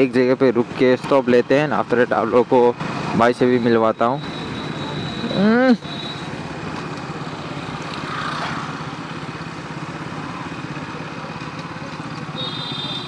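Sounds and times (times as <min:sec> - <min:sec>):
wind and road noise: 0:00.0 - 0:13.0
motorcycle engine running: 0:04.2 - 0:13.0.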